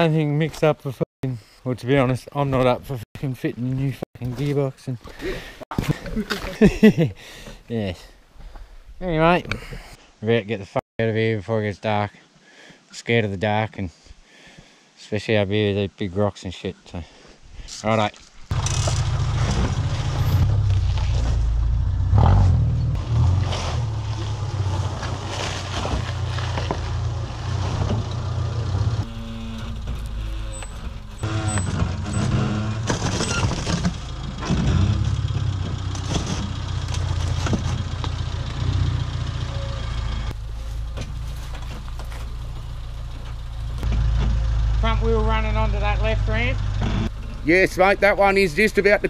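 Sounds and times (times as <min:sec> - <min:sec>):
car engine at low revs: 0:18.5 - 0:33.0, 0:33.6 - 0:49.0
knocks and clunks: 0:27.5 - 0:38.2.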